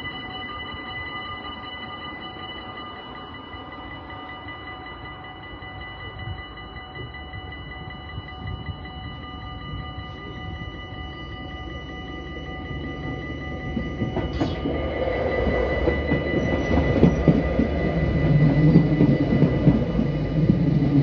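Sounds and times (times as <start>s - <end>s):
level crossing bells ringing: 0.0s - 21.0s
train rumble: 0.0s - 21.0s.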